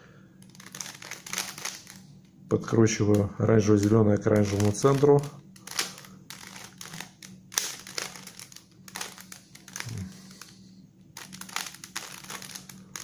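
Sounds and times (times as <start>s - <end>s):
puzzle cube clacking: 0.4s - 2.0s, 3.8s - 10.5s, 11.2s - 13.0s.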